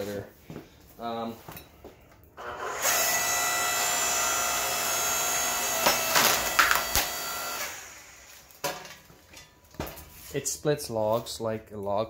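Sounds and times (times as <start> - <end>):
electric motor and pump whining: 2.4 - 8.6.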